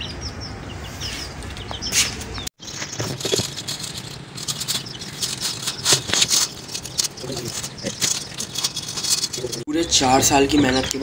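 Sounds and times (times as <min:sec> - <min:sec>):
wire cage rattling and clicking: 0:02.7 - 0:09.7.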